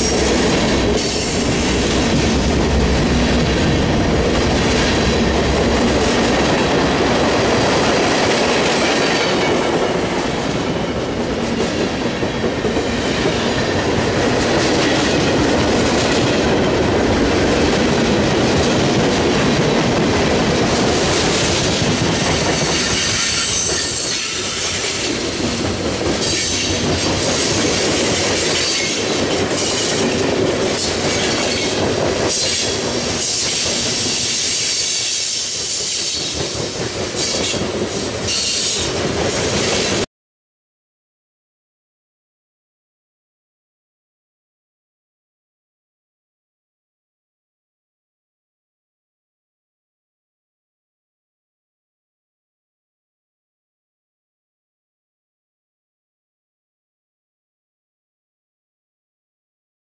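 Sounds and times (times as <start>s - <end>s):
high wheel squeal: 38.3s - 38.9s.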